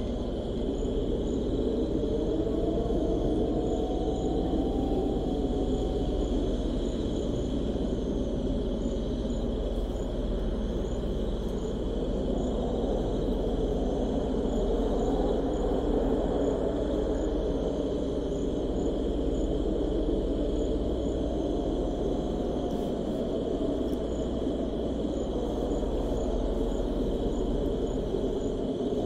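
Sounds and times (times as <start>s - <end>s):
crickets trilling: 0.0s - 29.0s
low rumble of wind: 0.0s - 29.0s.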